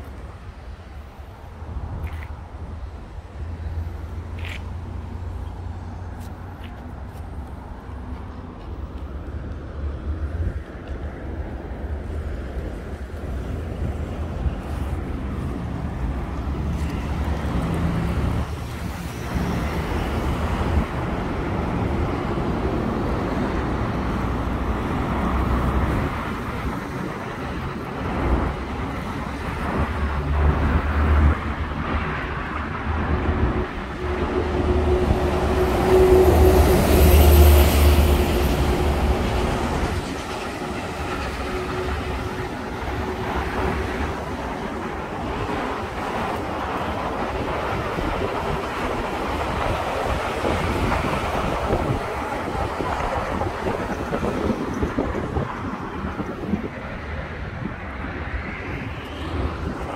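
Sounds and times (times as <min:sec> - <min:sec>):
traffic rumble: 0:00.0 - 0:59.9.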